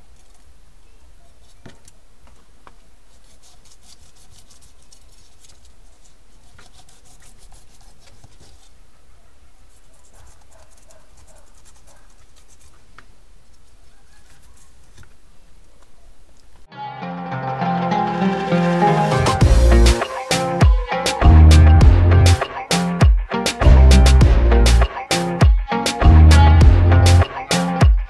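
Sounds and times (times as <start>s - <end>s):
knife scratching through fish: 3.1s - 8.8s, 9.7s - 12.9s.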